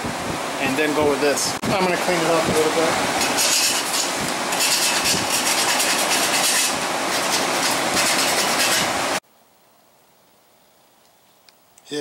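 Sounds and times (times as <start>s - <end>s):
hand file rasping on steel: 3.2s - 8.9s.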